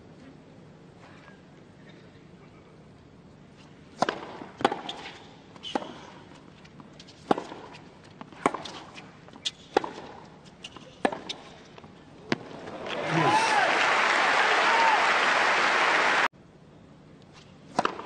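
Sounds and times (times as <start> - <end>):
racket hitting tennis ball: 3.9 - 12.6, 17.7 - 18.0.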